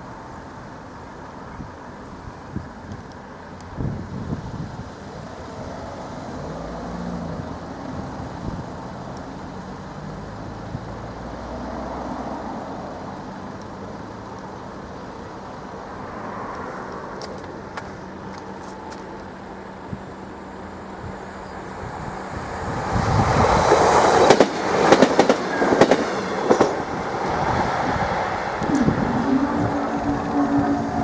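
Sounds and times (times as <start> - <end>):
road traffic: 0.0 - 31.0.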